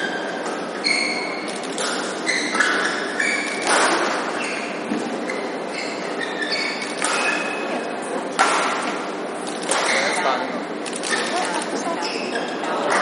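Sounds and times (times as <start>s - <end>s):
shoes squeaking on floor: 0.0s - 7.9s, 9.7s - 10.4s, 11.0s - 13.0s
racket hitting shuttlecock: 1.8s - 5.0s, 6.9s - 7.6s, 8.3s - 10.1s
crowd chattering: 9.7s - 13.0s.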